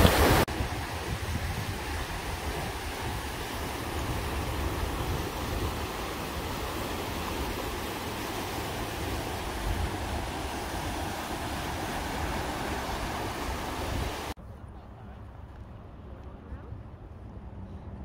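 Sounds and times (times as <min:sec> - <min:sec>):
wind rumble on microphone: 0:00.0 - 0:06.6
river rushing over rocks: 0:00.0 - 0:14.4.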